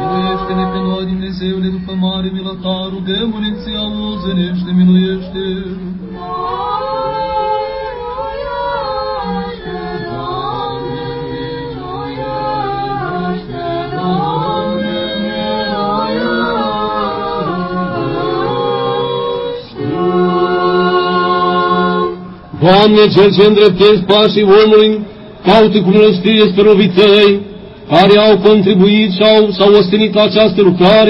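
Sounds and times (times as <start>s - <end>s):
choir chanting in harmony: 0.0s - 2.1s, 3.1s - 24.3s.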